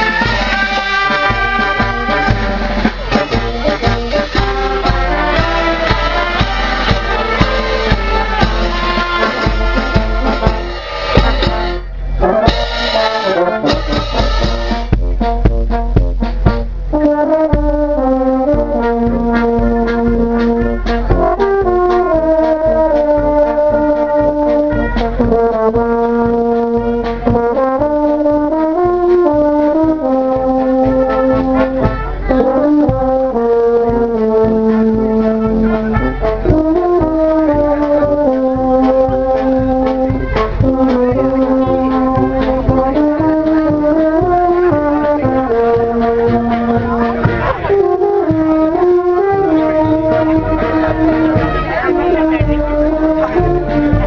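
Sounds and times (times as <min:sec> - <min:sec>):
sharp percussion hits: 0:00.0 - 0:16.9
brass band playing: 0:00.0 - 0:54.0.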